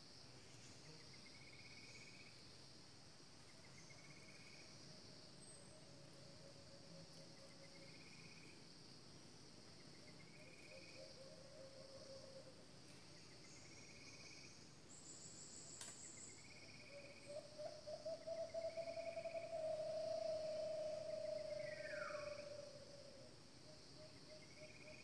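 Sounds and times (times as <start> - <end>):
crickets droning: 0.0 - 25.0
wavering low whistle-like tone: 17.0 - 23.3.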